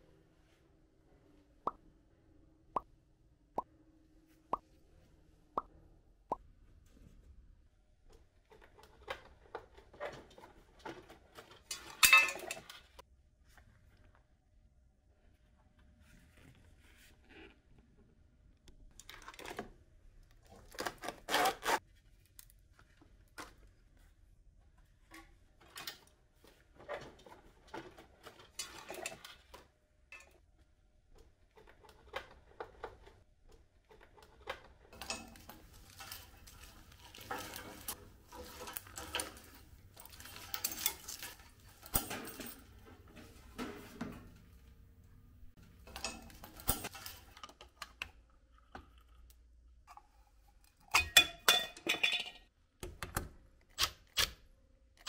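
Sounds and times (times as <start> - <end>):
small parts clicking and rustling: 31.2 - 52.3.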